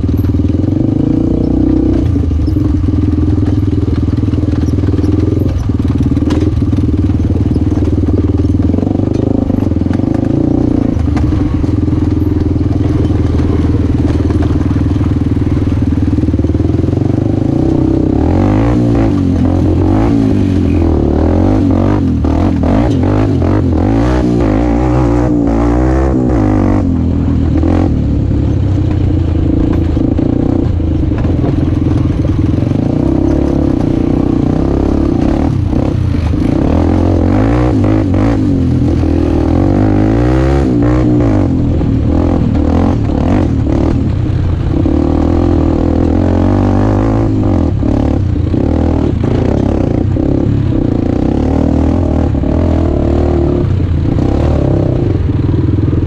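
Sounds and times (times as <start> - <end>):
bike clattering over ruts: 0.0 - 26.2, 26.8 - 52.9
dirt bike engine revving: 0.0 - 56.0.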